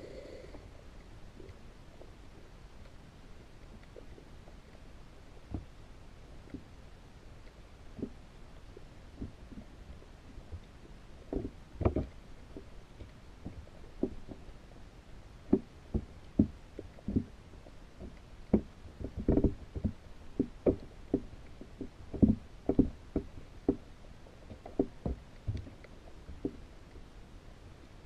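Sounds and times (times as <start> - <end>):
underwater knocks and taps: 5.4 - 5.7, 7.9 - 8.2, 9.2 - 10.7, 11.3 - 14.5, 15.5 - 23.9, 24.5 - 26.6.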